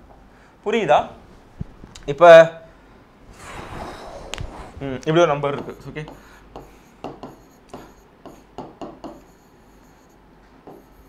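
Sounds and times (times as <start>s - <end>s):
stylus tapping on glass screen: 5.6s - 9.3s.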